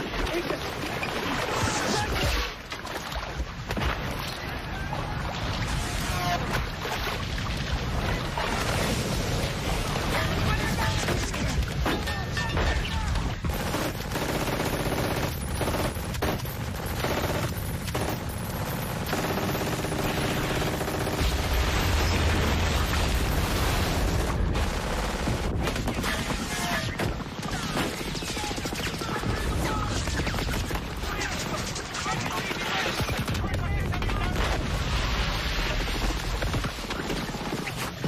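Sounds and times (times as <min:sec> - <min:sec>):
machine-gun and rifle fire: 0:13.3 - 0:38.0
explosions: 0:21.1 - 0:27.8.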